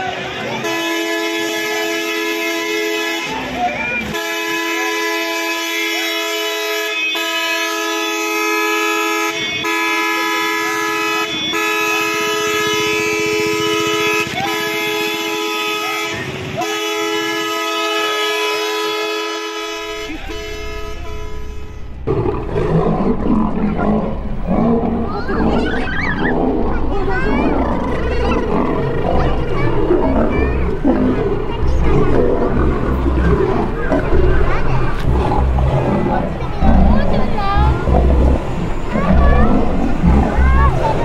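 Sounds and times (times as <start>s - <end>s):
vehicle horn blasts: 0.0s - 21.9s
low traffic rumble: 0.0s - 41.0s
lions fighting: 21.8s - 41.0s.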